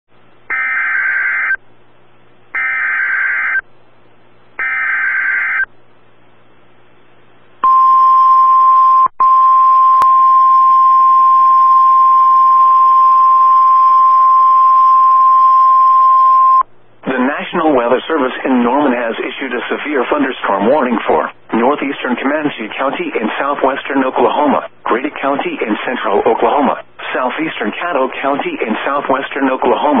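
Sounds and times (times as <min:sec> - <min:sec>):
steady warning alarm tone: 0:00.5 - 0:01.6, 0:02.6 - 0:03.6, 0:04.6 - 0:05.7, 0:07.6 - 0:16.6
faint radio hum: 0:16.7 - 0:30.0.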